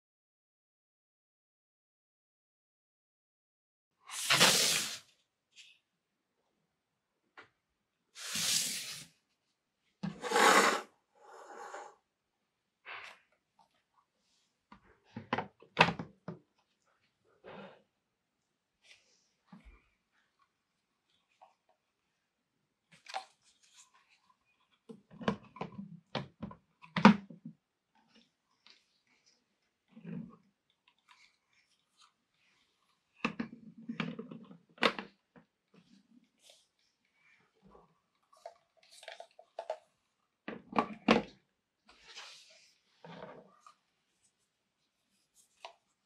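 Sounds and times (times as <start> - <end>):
plastic scraping on wooden tabletop: 10.0 - 11.9.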